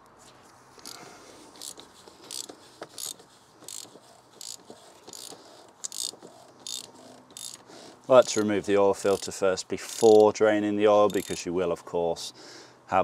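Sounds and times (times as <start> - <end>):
hand ratchet clicking: 0.8 - 10.4, 11.0 - 11.5.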